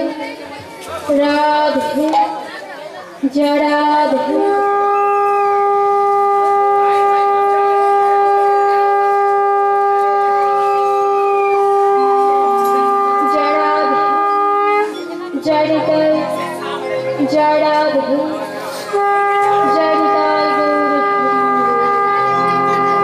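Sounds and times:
conch shell blown: 4.3 - 16.6, 17.6 - 23.0.

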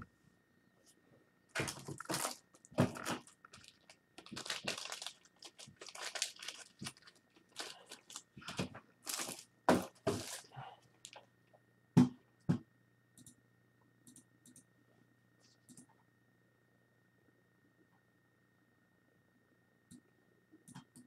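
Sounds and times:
crinkling handling noise: 0.8 - 11.3.

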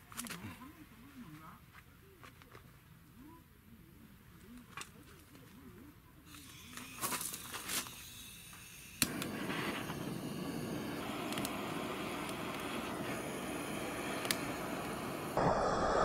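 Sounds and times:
gas hissing: 6.4 - 16.0
flame rushing: 8.6 - 16.0
lighter clicks: 9.0 - 16.0.

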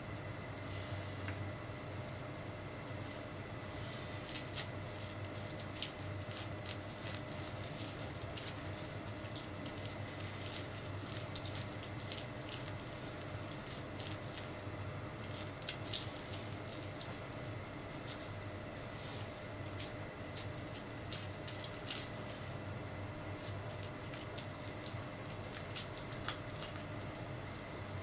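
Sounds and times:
spoon scraping orange flesh: 23.2 - 28.0.

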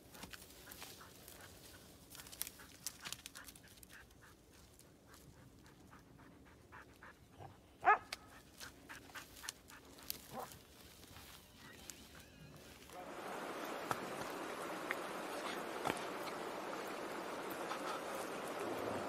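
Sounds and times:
small crackles: 0.0 - 6.0, 8.0 - 13.0
dog panting: 3.3 - 10.0
dog barking: 7.4 - 8.1.

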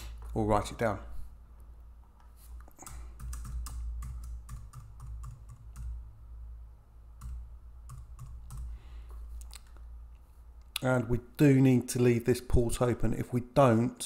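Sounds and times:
low steady hum: 0.0 - 14.0
typing on keyboard: 2.8 - 6.0, 7.2 - 8.7.

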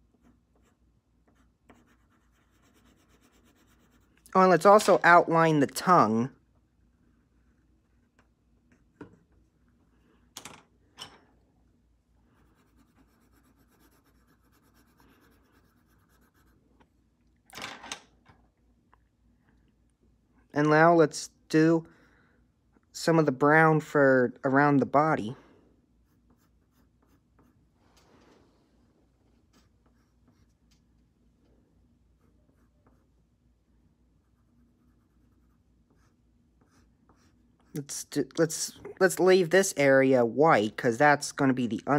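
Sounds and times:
pencil scribbling on paper: 0.0 - 4.3, 12.4 - 16.6, 26.0 - 27.7, 34.2 - 37.9.

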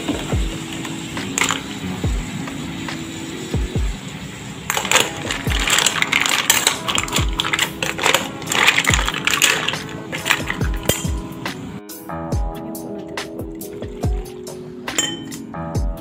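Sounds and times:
shells clattering in metal pot: 0.6 - 1.8, 4.7 - 11.5, 14.9 - 15.4.

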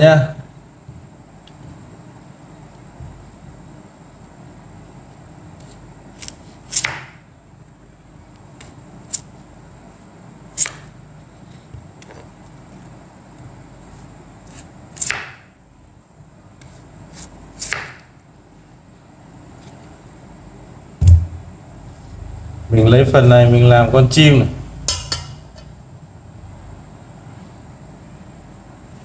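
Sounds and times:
knife slicing radish: 5.6 - 7.2, 13.8 - 15.4, 16.6 - 18.1.

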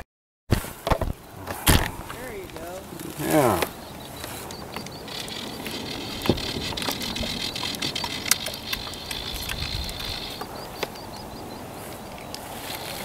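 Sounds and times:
fishing reel drag buzzing: 3.4 - 10.5
sharp reel clicks: 4.7 - 10.9.

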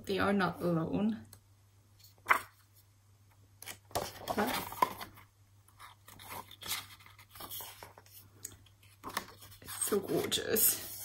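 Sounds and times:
book pages rustling: 2.0 - 2.9, 3.6 - 10.4.

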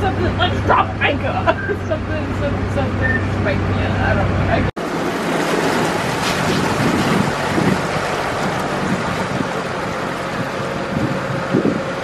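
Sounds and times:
boat engine hum: 0.0 - 12.0
water rushing: 4.4 - 12.0
wind on microphone: 5.9 - 12.0.

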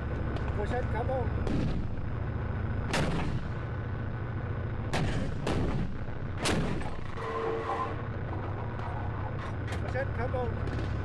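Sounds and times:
low rumble: 0.0 - 11.0
tank gun firing: 1.4 - 2.1, 2.8 - 3.7, 4.8 - 7.2, 10.6 - 11.0.

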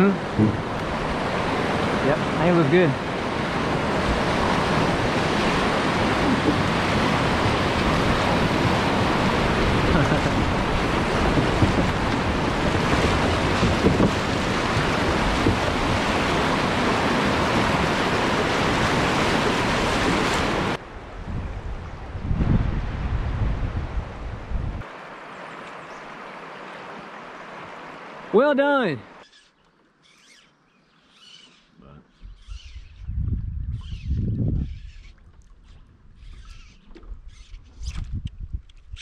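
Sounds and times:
river whitewater rushing: 0.2 - 20.8, 24.9 - 29.2.

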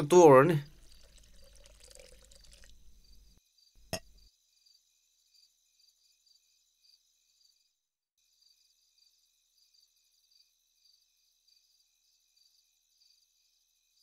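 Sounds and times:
faint crickets chirping: 0.1 - 14.0.

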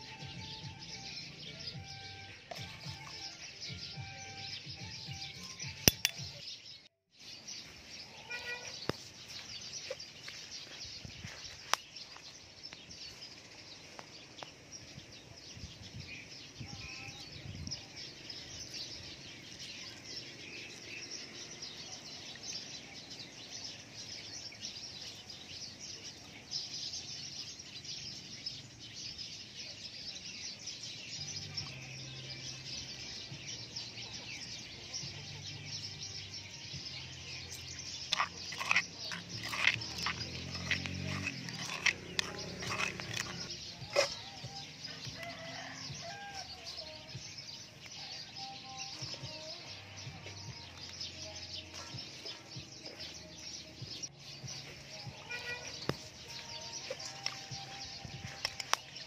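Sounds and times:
birds chirping: 0.0 - 59.0
clinks against stone mortar: 5.8 - 6.4, 37.5 - 44.6.

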